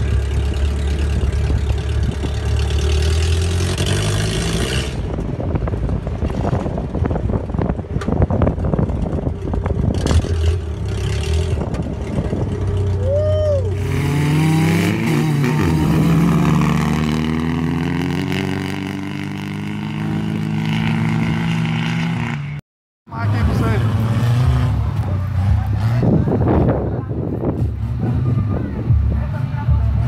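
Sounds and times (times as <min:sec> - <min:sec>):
jeep engine running: 0:00.0 - 0:30.0
engine revving up: 0:01.1 - 0:05.2, 0:13.7 - 0:22.6, 0:23.2 - 0:26.5
wind buffeting microphone: 0:04.9 - 0:13.6.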